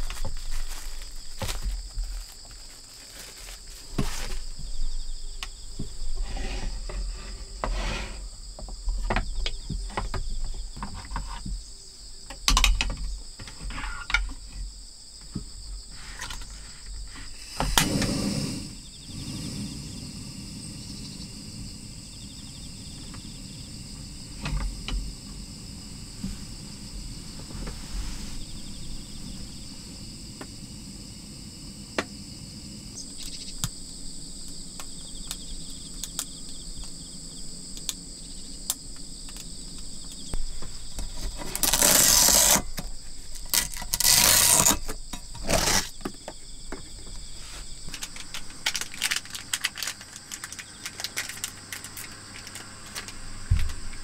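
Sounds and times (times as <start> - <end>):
loud hissing: 0.0 - 8.6, 15.8 - 46.1
crickets chirping: 0.0 - 54.0
small items clicking on a table: 34.4 - 37.0, 47.9 - 53.9.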